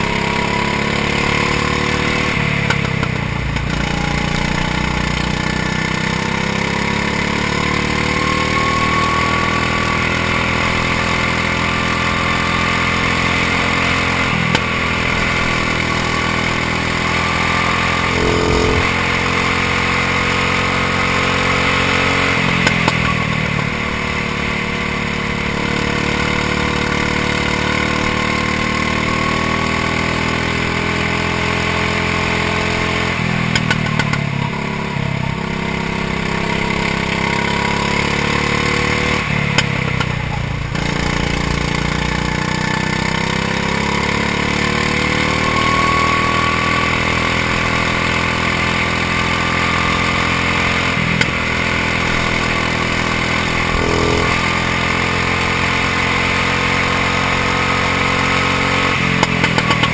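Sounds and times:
go-kart engine running: 0.0 - 59.9.

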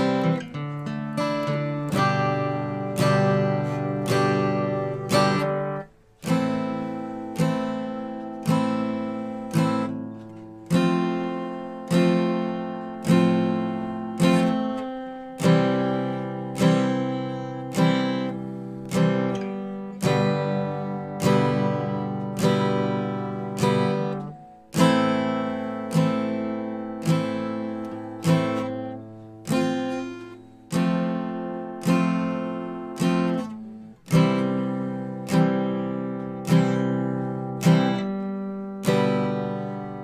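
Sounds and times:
acoustic guitar strummed chords: 0.0 - 40.0.

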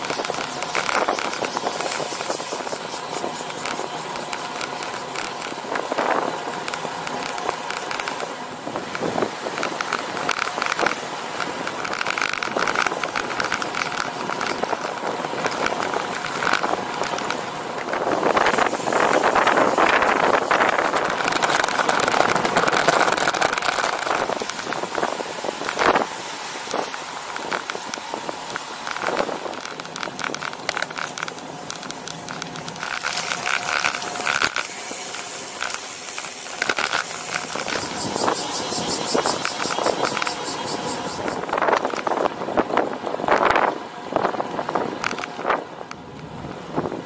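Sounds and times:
bicycle clicks and rattles: 0.0 - 47.0
bicycle tyre and road noise: 0.0 - 47.0
wind on microphone: 8.6 - 30.9, 36.8 - 47.0.

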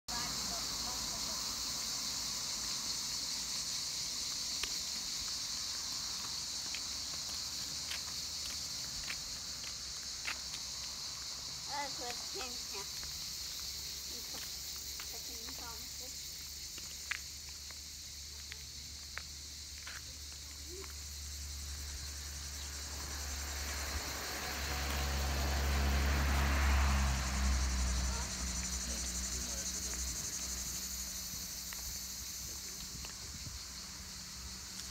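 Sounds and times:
cicadas buzzing: 0.1 - 34.9.

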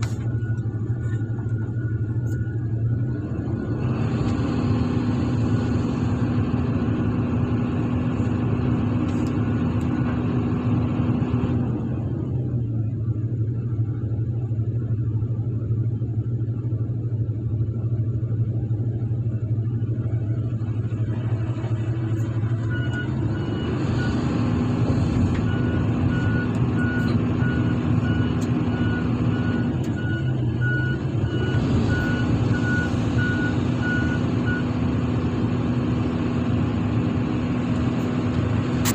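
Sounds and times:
diesel road roller engine: 0.0 - 38.9
reversing alarm beeping: 21.9 - 34.8.

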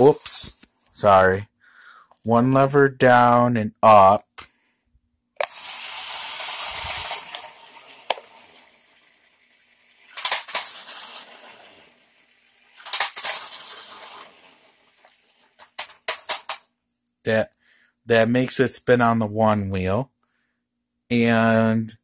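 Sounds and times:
toy car motors whirring: 5.4 - 16.6
plastic wheels scraping and rattling: 5.4 - 16.7
sharp clicks: 10.1 - 11.3, 12.7 - 14.0.

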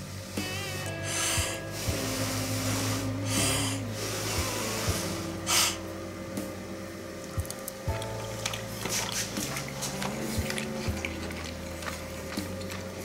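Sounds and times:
person blowing on food: 0.6 - 5.9.

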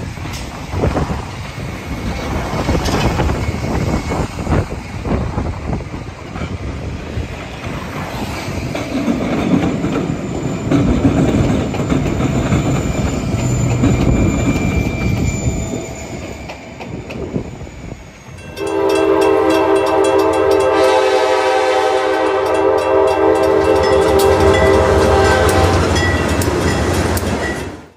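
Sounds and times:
wind on microphone: 0.0 - 10.0
diesel locomotives rumbling: 0.0 - 27.9
locomotive chord horn blast: 18.5 - 26.4.

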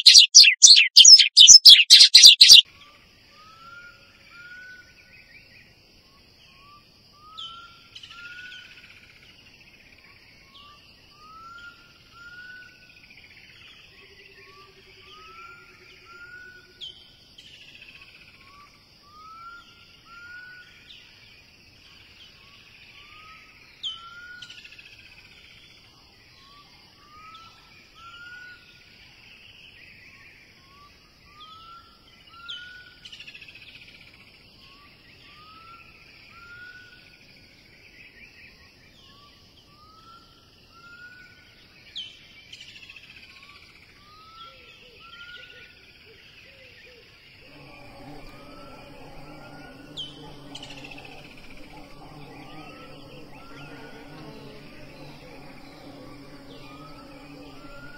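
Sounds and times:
bird whistling: 0.0 - 2.6
insect drone: 2.7 - 57.9.

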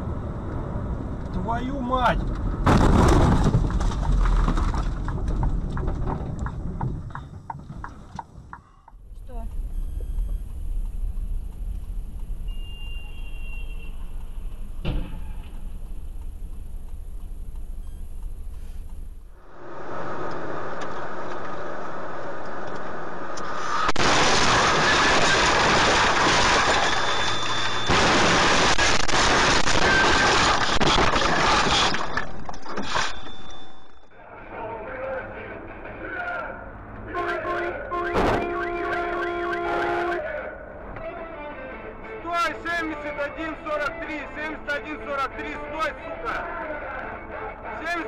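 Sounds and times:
tyre and engine road rumble: 0.0 - 40.0
light regular ticking: 8.9 - 14.8, 15.5 - 19.4.

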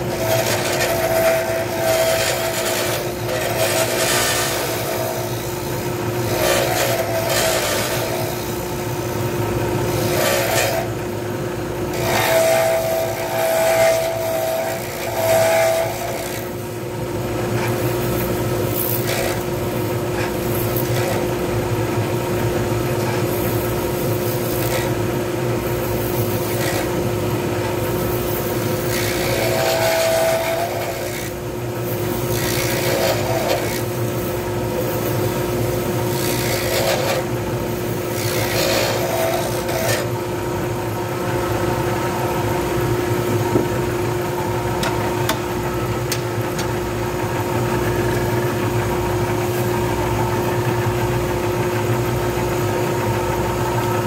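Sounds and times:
sandpaper rasping on spinning wood: 0.0 - 8.8, 9.9 - 10.9, 12.0 - 16.5, 25.6 - 27.0, 27.8 - 40.2
lathe motor humming: 23.6 - 54.0.

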